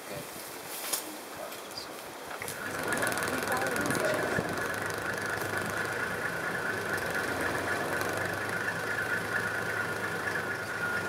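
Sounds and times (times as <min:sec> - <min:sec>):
high-pitched hum: 0:02.4 - 0:11.0
vehicle engine running: 0:02.4 - 0:11.0.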